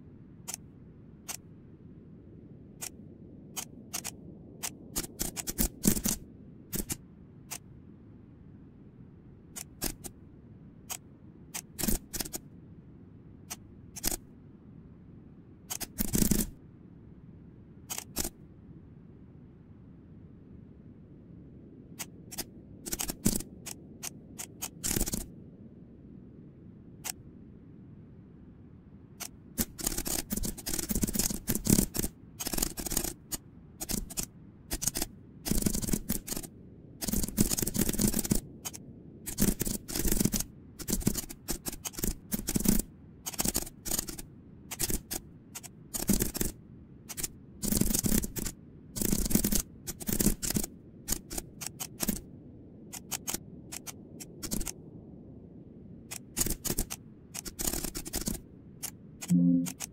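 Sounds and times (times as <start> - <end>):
keyboard typing: 3.6 - 7.6, 15.7 - 16.5, 17.9 - 18.3, 22.0 - 25.3, 29.2 - 52.2, 53.0 - 54.8, 59.2 - 59.9.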